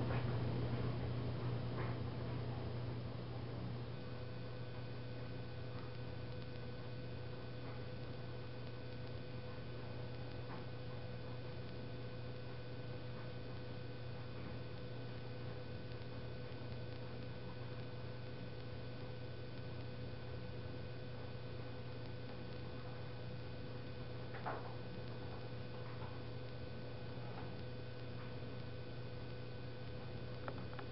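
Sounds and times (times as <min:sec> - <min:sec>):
low electrical hum: 0:00.0 - 0:30.9
faint light ticks: 0:05.7 - 0:09.2.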